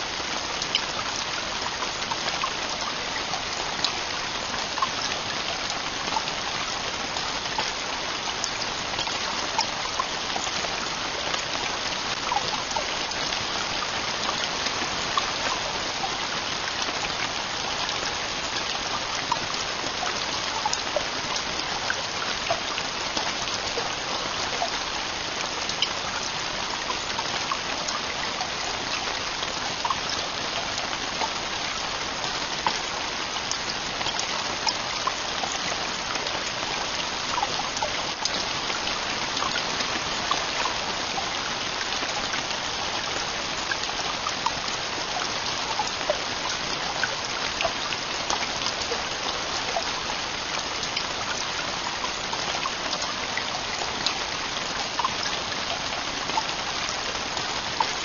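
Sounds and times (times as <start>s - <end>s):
heavy rain on tent roof: 0.0s - 58.0s
raindrops ticking: 0.0s - 58.0s.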